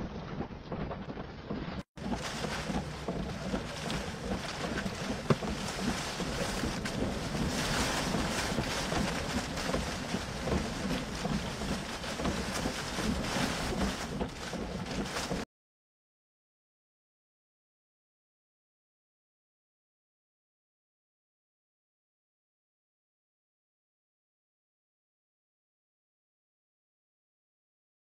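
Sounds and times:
wind and rain on microphone: 0.0s - 15.4s.

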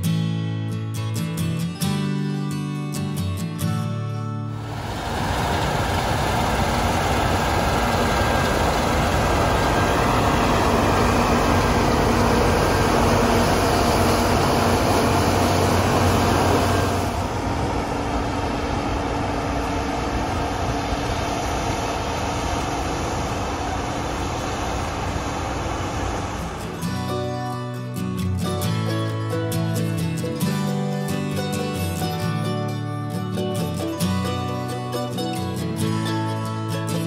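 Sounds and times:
low hum: 4.6s - 27.4s
combine harvester drone: 4.6s - 30.5s.

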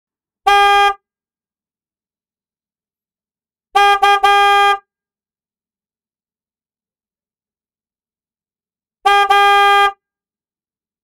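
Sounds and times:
car horn honking: 0.4s - 1.0s, 3.7s - 4.9s, 9.0s - 10.0s.

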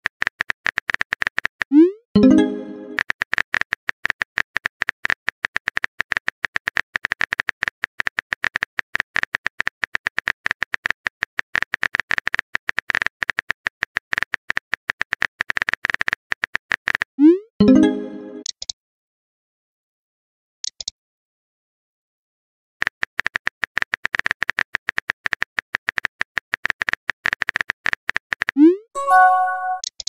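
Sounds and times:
message sent swoop and tone: 29.0s - 29.8s.

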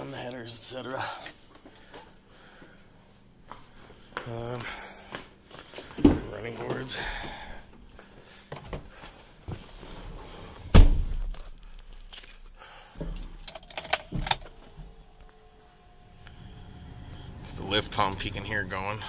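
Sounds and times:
loud thump: 10.7s - 11.3s
keys jangling and clicking: 11.3s - 15.0s.

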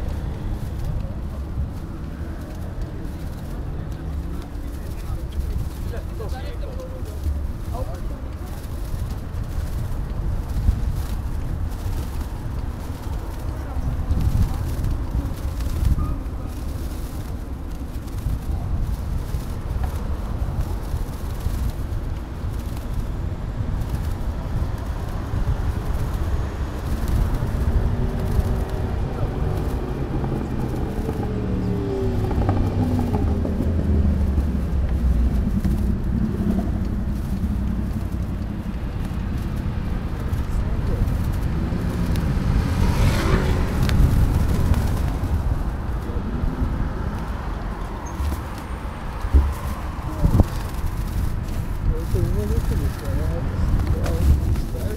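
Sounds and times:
city traffic: 0.0s - 54.9s
vehicle passing by: 0.0s - 54.9s
wind rumbling on microphone: 0.0s - 54.9s.

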